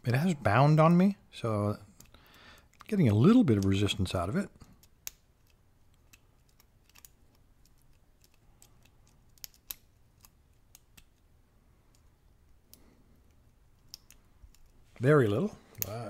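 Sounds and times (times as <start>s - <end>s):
lock pick clicking: 4.8s - 11.2s, 11.9s - 14.8s.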